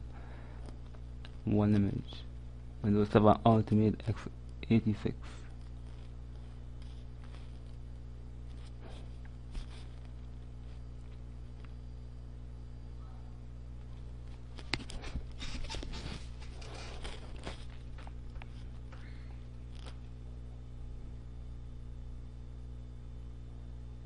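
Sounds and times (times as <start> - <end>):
low electrical hum: 0.0 - 24.0
rustling: 5.3 - 11.8, 13.9 - 19.0.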